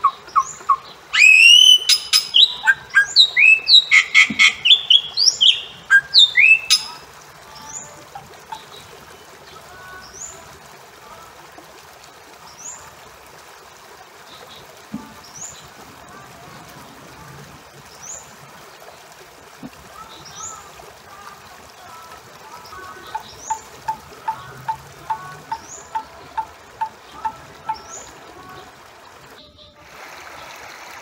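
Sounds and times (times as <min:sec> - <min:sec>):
bird calling with whistled notes: 0:00.0 - 0:07.0.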